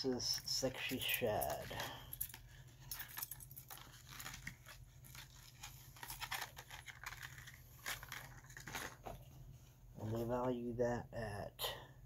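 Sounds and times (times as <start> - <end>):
plastic package crinkling: 0.4 - 9.2.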